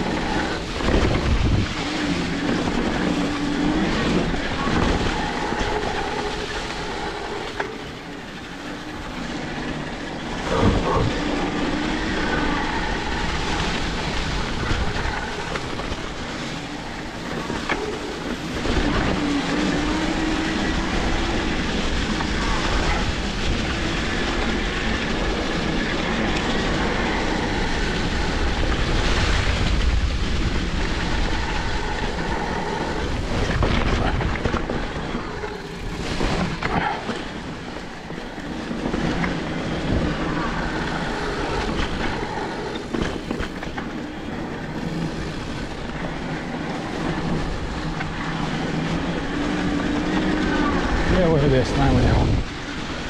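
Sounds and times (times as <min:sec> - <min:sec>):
bike tyres rolling over trail: 0:00.0 - 0:53.0.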